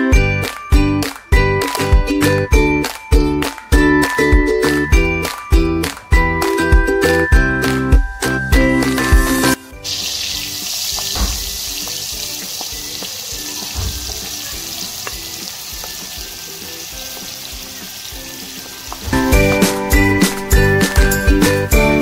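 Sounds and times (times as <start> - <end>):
jingly music: 0.0 - 22.0
onions sizzling in hot oil: 9.8 - 19.2.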